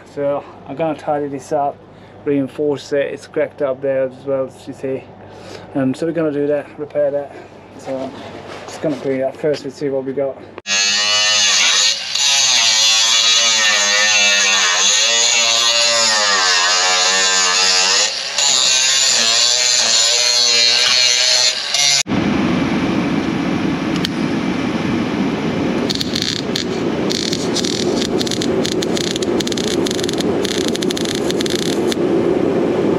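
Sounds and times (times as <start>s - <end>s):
angle grinder grinding steel: 10.7s - 22.0s, 25.9s - 32.0s
arc welding crackle: 25.8s - 32.0s.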